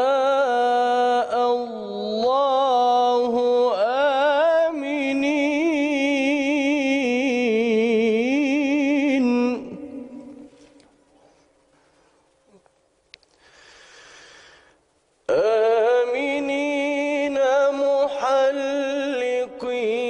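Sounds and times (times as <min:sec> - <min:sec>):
man chanting melodic recitation: 0:00.0 - 0:10.8, 0:15.3 - 0:20.0.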